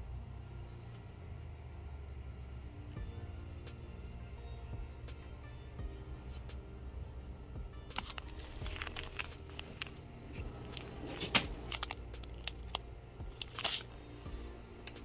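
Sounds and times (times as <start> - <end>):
steady low hum: 0.0 - 15.0
seed packet crinkling: 7.9 - 14.0
shopping cart rattling: 7.9 - 14.2.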